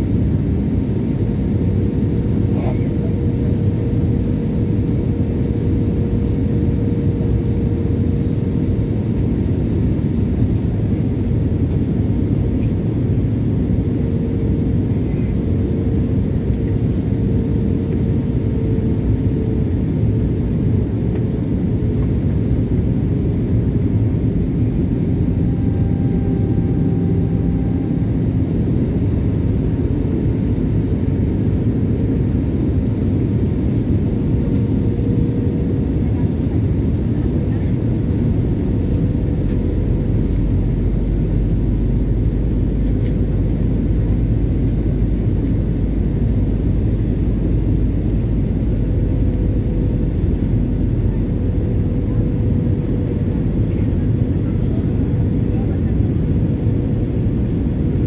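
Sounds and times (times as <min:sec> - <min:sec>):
airflow and jet engine rush: 0:00.0 - 0:58.0
faint steady hum: 0:14.3 - 0:53.1.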